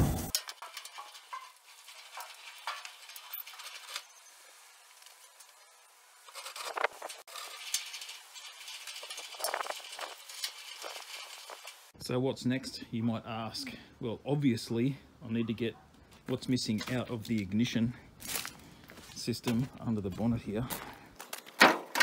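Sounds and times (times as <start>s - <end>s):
faint clicks and rustles: 0.4s - 11.9s.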